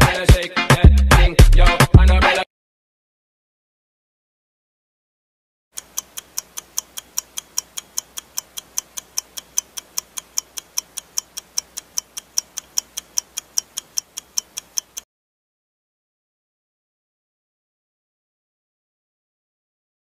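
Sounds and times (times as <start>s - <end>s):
fast clock ticks: 5.8s - 15.1s.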